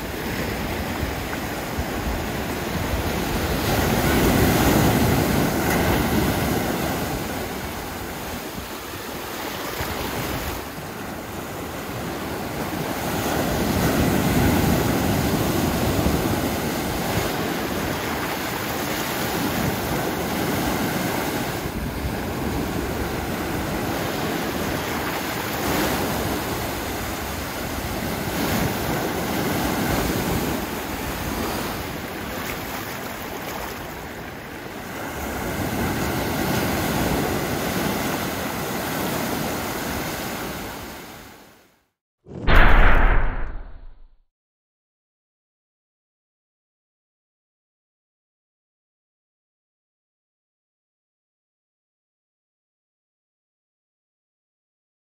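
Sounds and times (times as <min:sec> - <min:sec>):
waves washing over sandy beach: 0:00.0 - 0:41.4.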